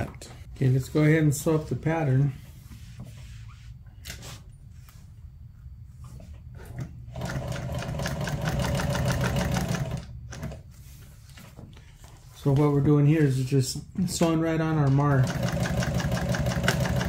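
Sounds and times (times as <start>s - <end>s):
rapid machine stitching: 7.1s - 10.6s, 15.1s - 17.0s
sewing machine motor humming: 7.1s - 10.6s, 15.2s - 17.0s.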